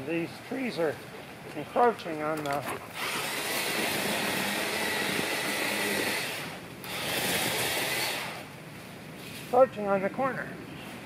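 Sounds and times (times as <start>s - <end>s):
electric chainsaw cutting brush: 2.9s - 8.5s.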